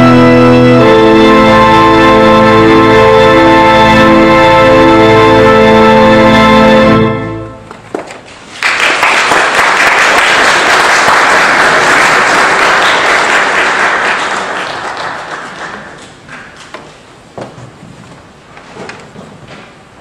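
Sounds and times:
pipe organ chord: 0.0 - 7.8
audience applause: 8.5 - 16.6.

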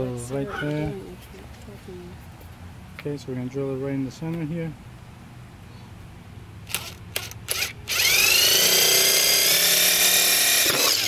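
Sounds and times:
cordless drill whining: 6.7 - 11.0
drill trigger blips: 6.7 - 11.0.

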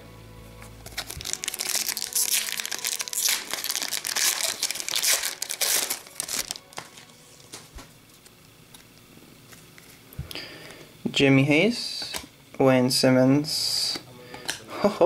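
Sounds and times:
plastic wrapper crinkling: 0.8 - 10.0.

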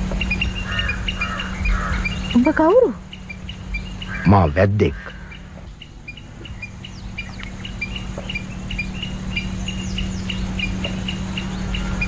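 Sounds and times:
birds chirping: 0.0 - 12.0
low steady hum: 0.0 - 12.0.

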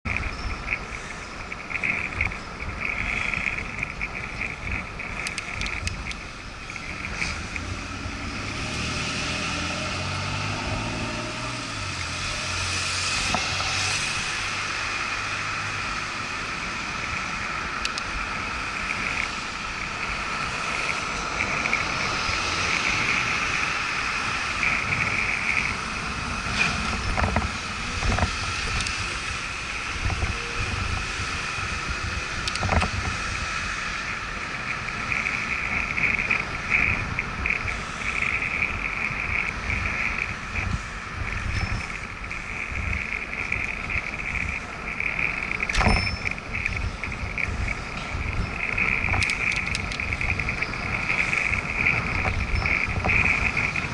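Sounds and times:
truck engine running: 0.0 - 12.5
steady high whine: 0.0 - 53.9
street traffic: 0.0 - 53.9
wind rumble: 0.0 - 53.9
sharp clicks: 1.7 - 7.7, 17.8 - 18.1, 32.4 - 32.9, 42.9 - 53.6.

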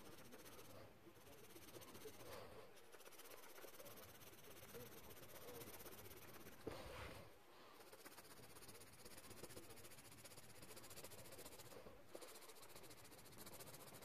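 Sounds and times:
soft rustle: 0.0 - 10.2.

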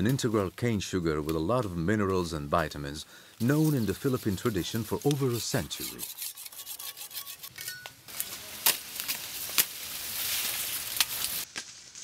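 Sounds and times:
whetstone scraping blade: 3.7 - 7.8.

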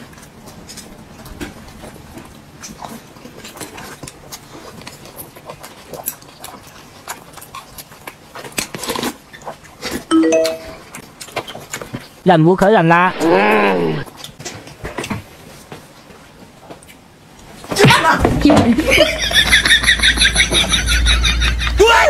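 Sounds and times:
chewing and lip smacks: 0.0 - 10.1, 10.9 - 12.2
brief pitched tone: 10.1 - 10.8.

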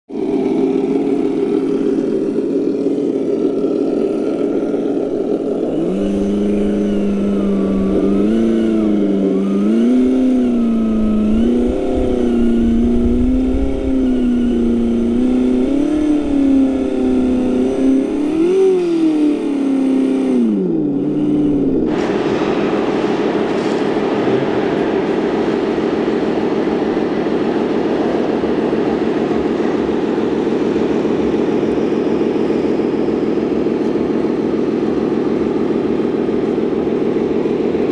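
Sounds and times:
simulated engine sound revving: 0.2 - 37.8.

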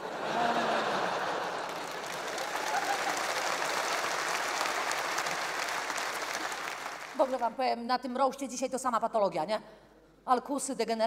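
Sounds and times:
audience laughing: 0.0 - 3.8
audience clapping: 0.4 - 7.5.

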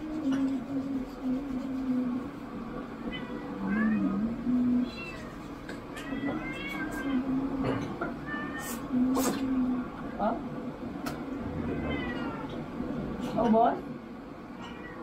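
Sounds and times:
cats meowing: 3.0 - 8.9, 11.4 - 12.7, 14.6 - 15.0.

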